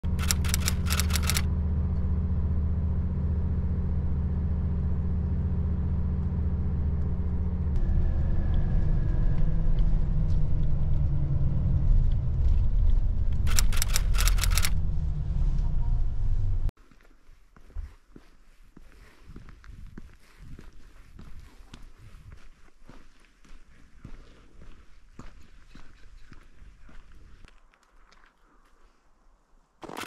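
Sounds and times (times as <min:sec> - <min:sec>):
rapid clicks: 0:00.0 - 0:01.5, 0:13.4 - 0:14.8
vehicle engine running: 0:00.0 - 0:16.7.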